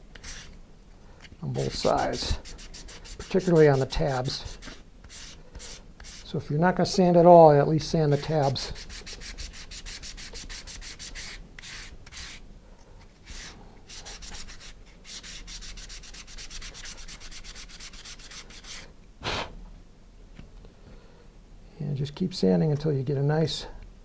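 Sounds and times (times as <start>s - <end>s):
sandpaper scraping wood: 0.2s - 0.6s, 1.6s - 6.3s, 8.0s - 12.4s, 13.2s - 18.9s.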